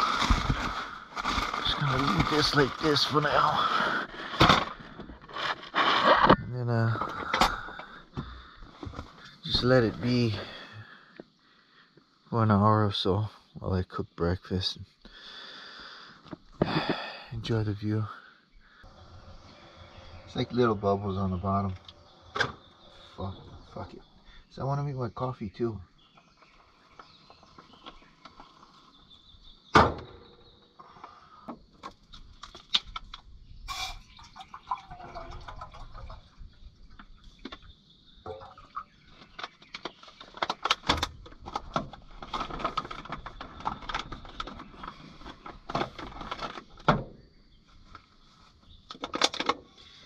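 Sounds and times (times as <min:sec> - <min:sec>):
cooking gear clicks and knocks: 0:48.9 - 0:49.6.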